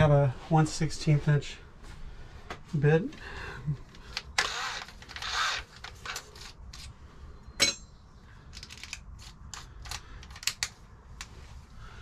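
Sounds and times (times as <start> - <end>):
drill bits rattling and scraping: 3.9 - 7.0, 8.5 - 10.7
sharp metal clink: 7.6 - 8.0.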